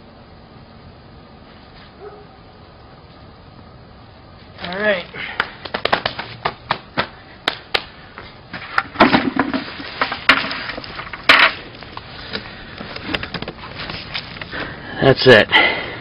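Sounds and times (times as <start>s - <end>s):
rustling bumps: 4.4s - 14.8s.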